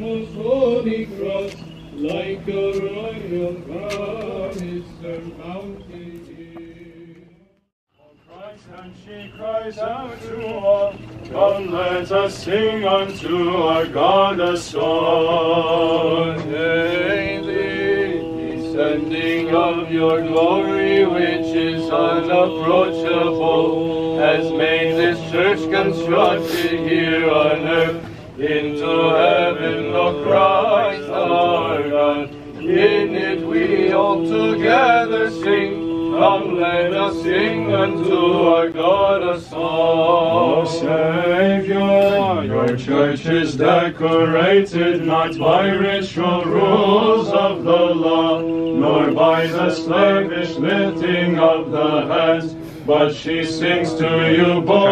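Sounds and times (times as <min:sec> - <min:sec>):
men chanting a hymn: 0:00.0 - 0:07.2, 0:08.0 - 0:54.9
breaths: 0:27.9 - 0:28.4, 0:52.5 - 0:52.9.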